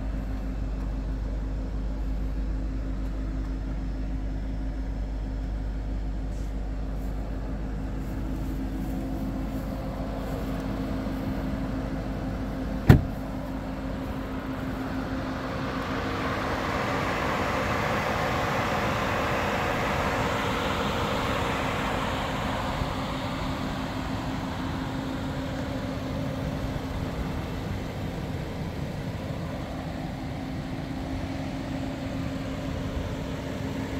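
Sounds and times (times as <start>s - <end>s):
car engine idling: 0.0s - 33.9s
loud thump: 12.8s - 13.2s.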